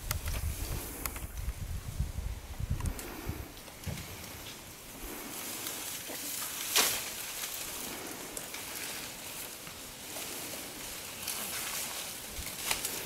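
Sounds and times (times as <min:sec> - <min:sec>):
bamboo leaves rustling: 0:00.0 - 0:13.0
panda crunching bamboo: 0:05.5 - 0:13.0.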